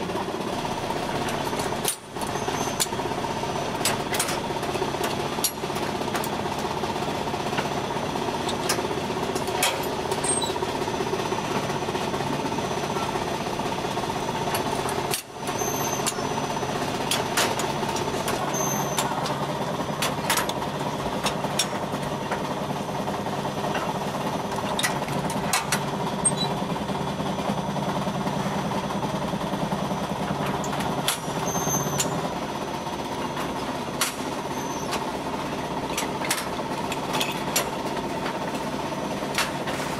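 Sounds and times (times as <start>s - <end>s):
metallic clicks and clanks: 1.2s - 3.0s, 8.4s - 10.6s, 35.9s - 38.4s.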